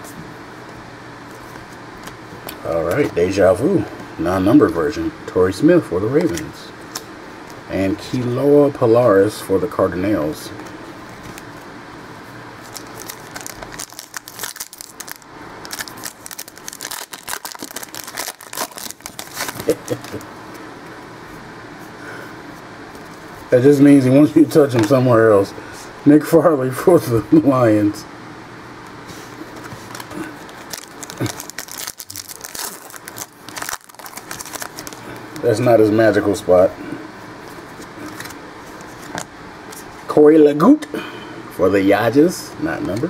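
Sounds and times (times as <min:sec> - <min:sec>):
foil pack crinkling and tearing: 0:12.6 - 0:20.2, 0:29.7 - 0:35.6.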